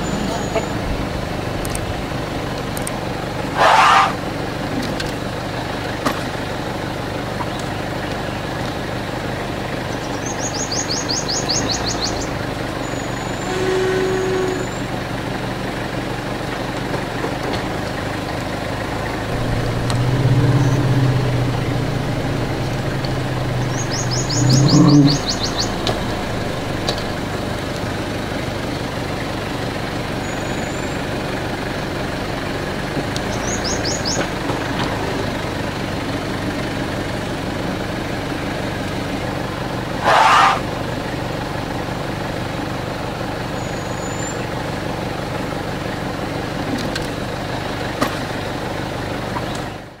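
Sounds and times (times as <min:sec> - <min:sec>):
vehicle engine idling: 0:00.0 - 0:13.4, 0:14.7 - 0:50.0
loud rush of noise: 0:19.3 - 0:28.2
bird chirps: 0:19.4 - 0:27.3.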